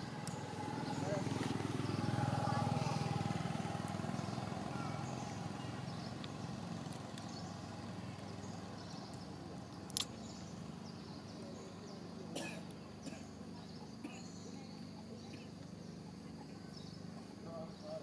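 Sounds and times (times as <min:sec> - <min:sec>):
sharp clicks: 0:09.9 - 0:10.2.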